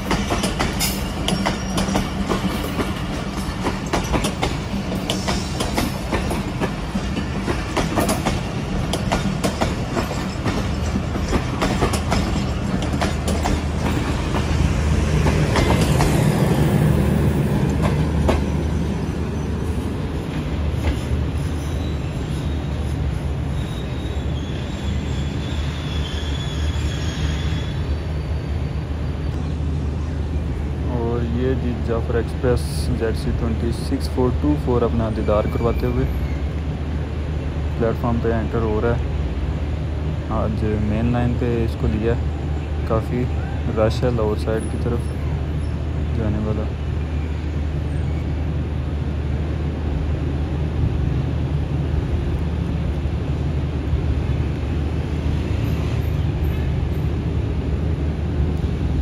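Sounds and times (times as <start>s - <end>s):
train coaches rumbling: 0.0s - 59.0s
faint high wheel squeal: 21.0s - 29.4s, 35.0s - 36.6s, 47.0s - 48.4s.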